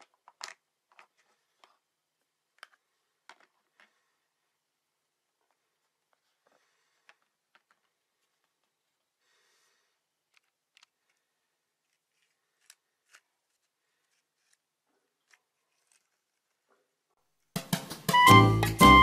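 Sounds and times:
plastic toy pieces clicking: 0.0 - 1.8.

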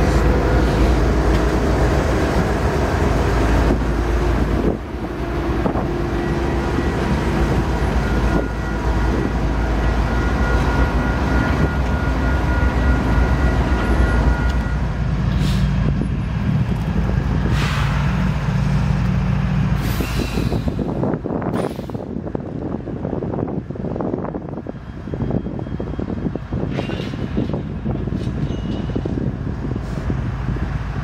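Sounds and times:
wind noise on microphone: 0.0 - 12.2, 14.8 - 18.9, 19.6 - 31.0
locomotive engine drone: 0.0 - 31.0
air brake hisses: 19.8 - 20.9, 21.5 - 22.1.

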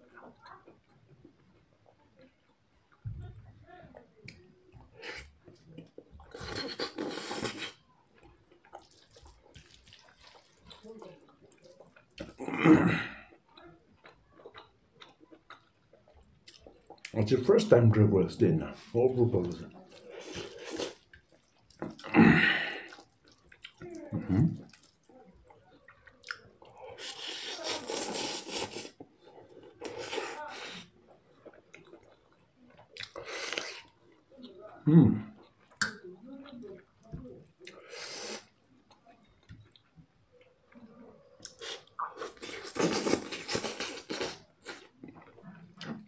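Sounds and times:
chewing: 0.0 - 46.0
loud wet slurp: 6.2 - 7.8, 8.7 - 13.2, 26.2 - 32.2, 37.7 - 38.6, 41.4 - 45.2
mouth or breath sounds: 6.3 - 7.8, 26.9 - 29.0, 37.7 - 38.5
mouth clicks: 35.3 - 36.1.

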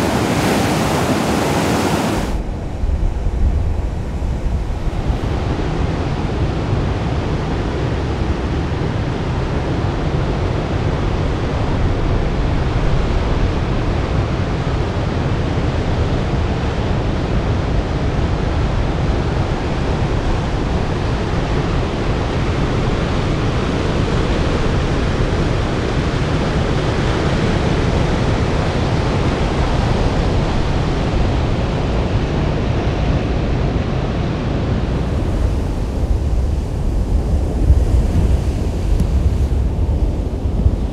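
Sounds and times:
ocean waves breaking: 0.0 - 7.2, 34.7 - 40.9.

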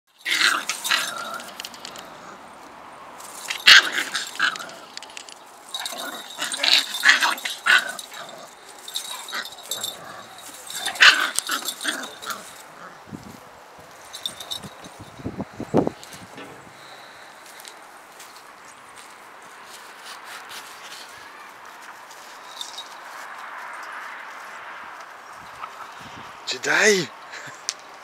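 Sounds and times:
dogs vocalizing while playing: 0.2 - 2.5, 3.2 - 13.1
rustling in cut grass: 19.0 - 24.4.

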